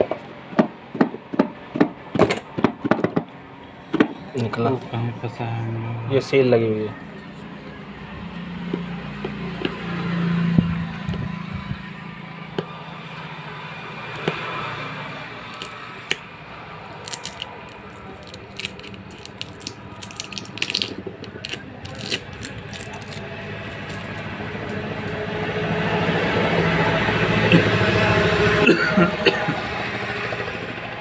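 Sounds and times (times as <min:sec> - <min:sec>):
small clicks and crackles: 0:17.0 - 0:24.2.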